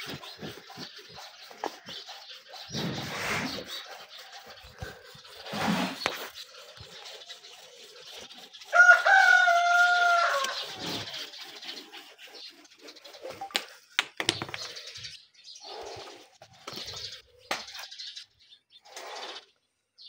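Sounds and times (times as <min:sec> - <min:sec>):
rooster crowing: 0:08.7 - 0:10.6.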